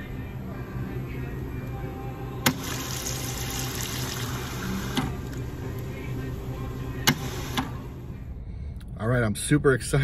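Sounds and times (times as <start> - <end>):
soda pouring into cup: 2.7 - 4.8.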